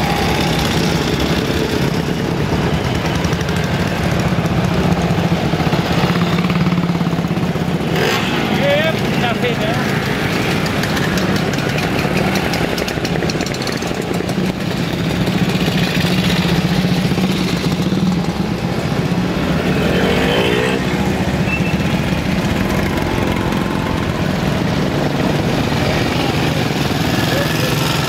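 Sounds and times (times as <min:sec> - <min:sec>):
engine passing by: 0:15.5 - 0:28.0
motorcycles and scooters droning past: 0:19.2 - 0:28.0.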